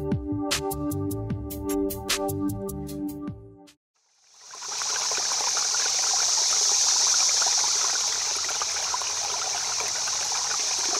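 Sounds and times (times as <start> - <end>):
rushing trickling water: 4.0 - 10.9.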